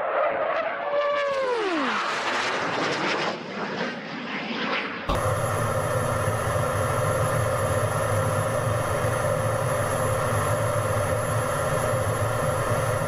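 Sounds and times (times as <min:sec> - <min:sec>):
jet engine drone: 0:00.0 - 0:13.0
high steady whine: 0:05.1 - 0:13.0.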